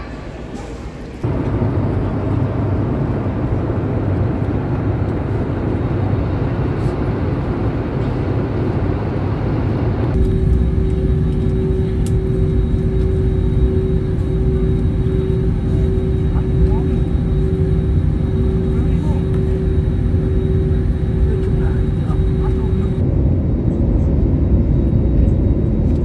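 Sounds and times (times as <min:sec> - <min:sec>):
airliner cabin noise: 0:00.0 - 0:26.0
humming drone: 0:01.2 - 0:26.0.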